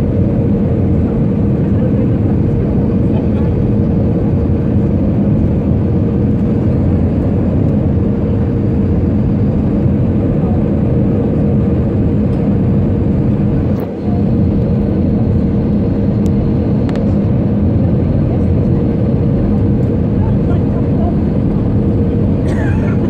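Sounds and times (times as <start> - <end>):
jet engine roar in cabin: 0.0 - 23.0
steady hum: 0.0 - 23.0.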